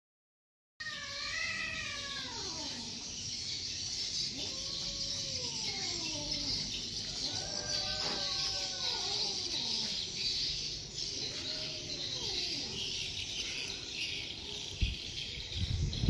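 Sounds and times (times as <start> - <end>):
roosters crowing: 4.3 - 10.2.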